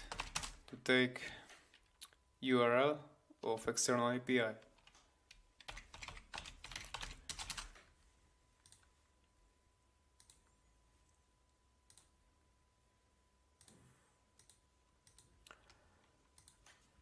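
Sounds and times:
keyboard typing: 0.0 - 0.7, 4.6 - 7.9
faint steady hum: 0.0 - 17.0.

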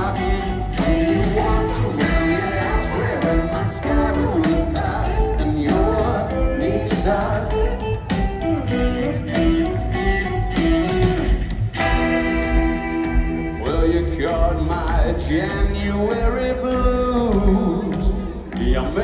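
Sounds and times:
high backing vocal: 0.0 - 9.5
live rock band: 0.0 - 19.0.

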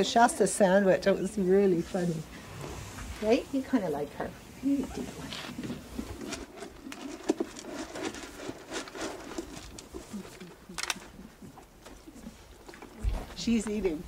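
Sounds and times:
horse chewing feed: 4.7 - 13.9.

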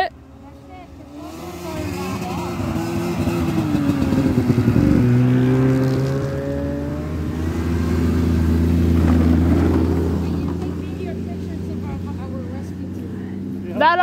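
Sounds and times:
snowmobile engines passing: 0.4 - 14.0.

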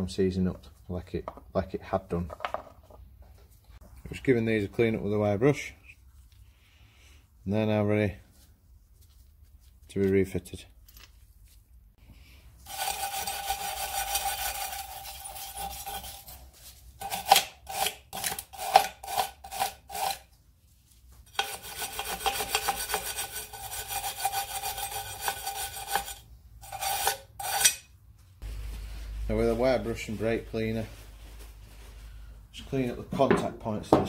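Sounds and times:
wire brush scrubbing steel: 12.6 - 20.3, 21.3 - 27.9.

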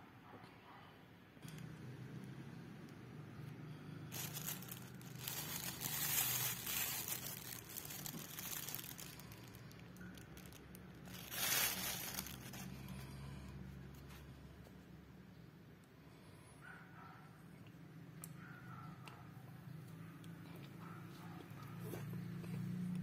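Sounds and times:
plastic bag crinkling: 4.1 - 13.2.

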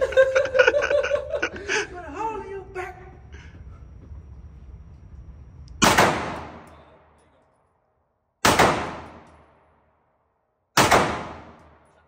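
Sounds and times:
pistol shots echoing: 5.8 - 7.2, 8.4 - 9.8, 10.7 - 11.9.

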